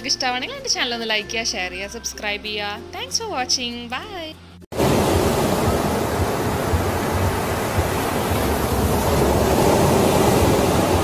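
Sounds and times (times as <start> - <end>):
ocean waves washing: 4.7 - 11.0.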